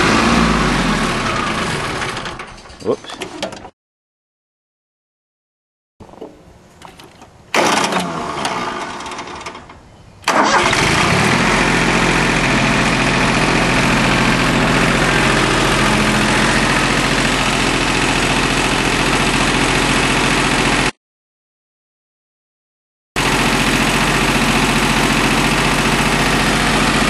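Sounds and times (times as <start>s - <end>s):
diesel engine cranking and starting: 0.0s - 3.4s, 7.5s - 20.9s, 23.2s - 27.0s.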